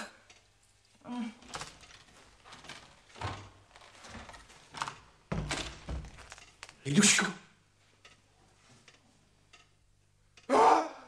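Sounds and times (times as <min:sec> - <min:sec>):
rustling: 0:00.7 - 0:06.9
heavy door thud: 0:05.3 - 0:06.3.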